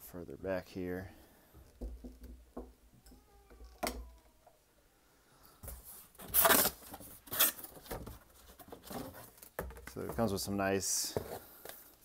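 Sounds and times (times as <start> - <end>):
packaging rustling and scraping: 5.8 - 9.6.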